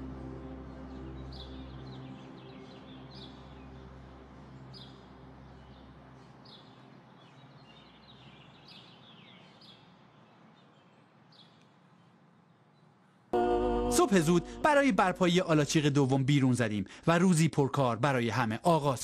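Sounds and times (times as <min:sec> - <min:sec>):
low sustained music tone: 0:00.0 - 0:08.6, 0:13.4 - 0:16.4
faint outdoor ambience: 0:00.0 - 0:19.0
small birds chirping: 0:00.7 - 0:13.3.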